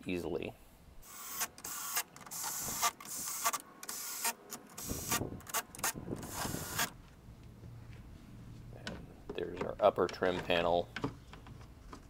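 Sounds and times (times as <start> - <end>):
cordless drill motor whirring: 1.1 - 6.9.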